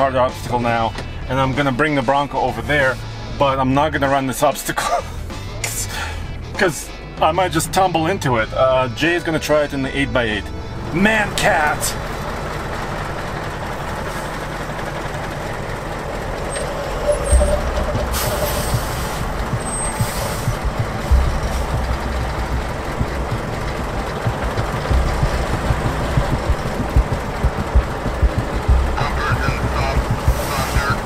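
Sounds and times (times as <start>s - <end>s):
truck diesel engine rumbling: 7.3s - 31.0s
air brake hisses: 18.1s - 20.6s.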